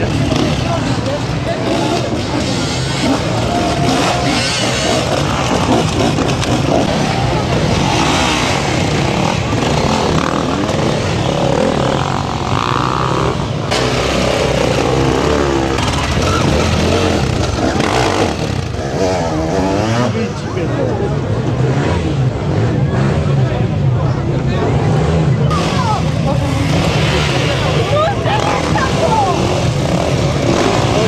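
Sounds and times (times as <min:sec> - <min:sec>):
dirt bike engines revving: 0:00.0 - 0:31.0.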